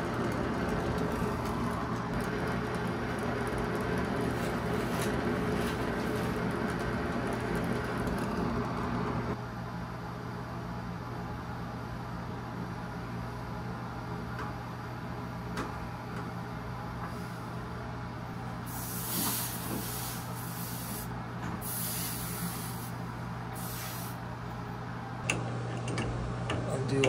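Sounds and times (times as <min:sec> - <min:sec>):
torch flame roaring: 0:00.0 - 0:09.4, 0:18.4 - 0:24.3
steam hissing: 0:18.6 - 0:24.2.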